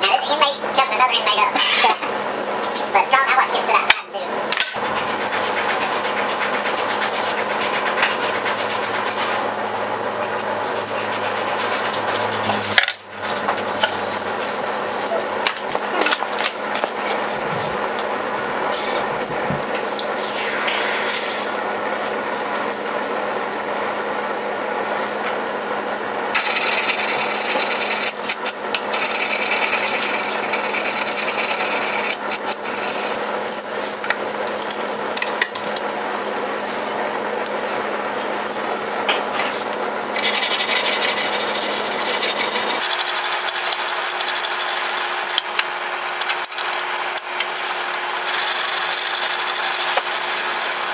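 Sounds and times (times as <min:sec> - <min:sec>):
hand file scraping steel: 0:26.4 - 0:33.2, 0:40.2 - 0:44.8.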